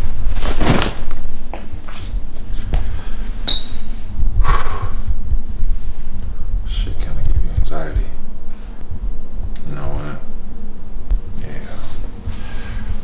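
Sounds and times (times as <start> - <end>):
clothes rustling: 0.0 - 4.1
low rumble: 2.1 - 13.0.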